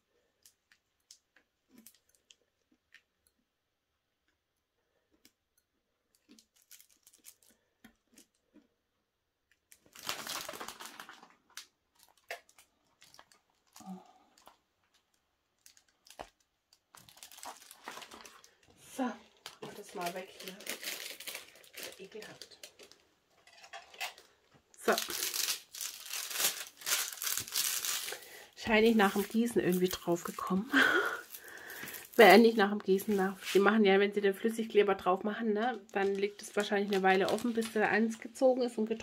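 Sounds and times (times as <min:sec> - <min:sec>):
plastic film crinkling: 0:06.1 - 0:07.6, 0:09.6 - 0:33.8, 0:35.6 - 0:38.7.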